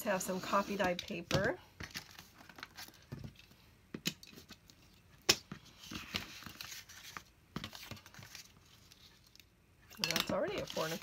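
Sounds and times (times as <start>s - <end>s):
paper rustling: 1.8s - 3.4s, 4.3s - 9.4s, 10.4s - 11.0s.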